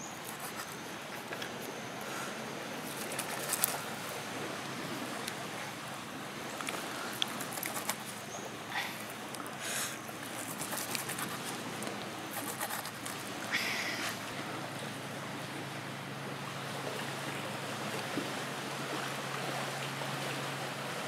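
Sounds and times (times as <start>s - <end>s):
knife scraping on wood: 0.0s - 1.3s, 2.9s - 3.8s, 7.2s - 8.1s, 10.2s - 11.6s, 12.3s - 13.2s.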